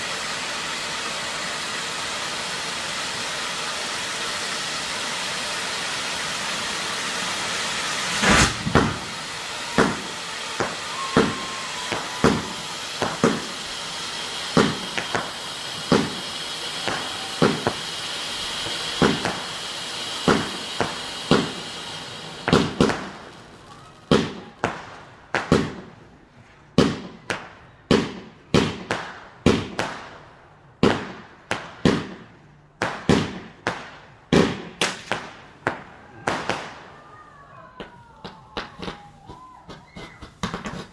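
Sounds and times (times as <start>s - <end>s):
firework fountains hissing: 0.0s - 40.9s
aerial firework shots banging: 7.4s - 13.6s, 14.5s - 17.8s, 18.9s - 19.4s, 20.2s - 21.7s.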